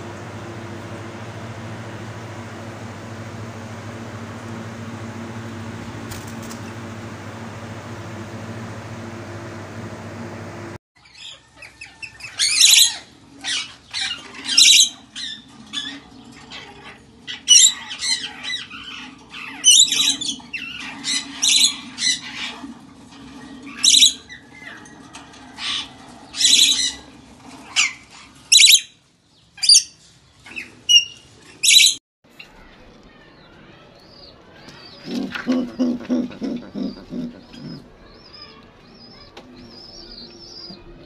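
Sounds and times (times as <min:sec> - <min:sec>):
parrots squawking: 0:35.0 - 0:38.0.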